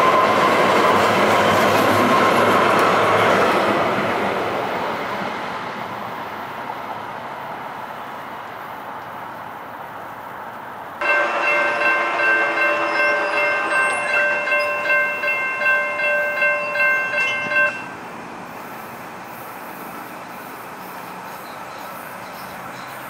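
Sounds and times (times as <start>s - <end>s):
grade crossing warning bell: 11.0s - 18.1s.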